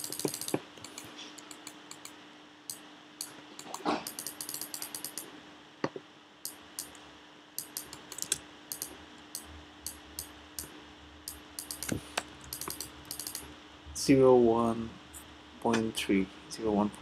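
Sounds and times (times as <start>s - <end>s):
keyboard keys clicking: 0.0s - 2.1s, 3.6s - 5.2s, 7.6s - 10.7s, 11.3s - 13.4s
faint steady hum: 0.0s - 17.0s.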